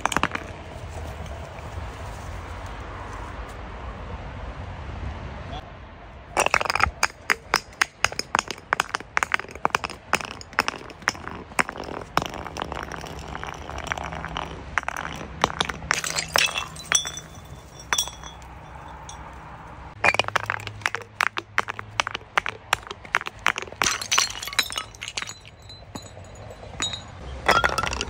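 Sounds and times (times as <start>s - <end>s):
glass bottles breaking and clinking: 6.4s - 19.2s, 20.0s - 28.0s.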